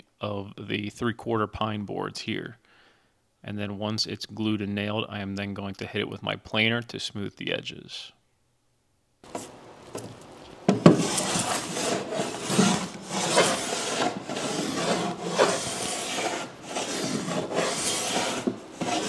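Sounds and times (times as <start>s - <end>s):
hand plane shaving wood: 10.7s - 19.0s.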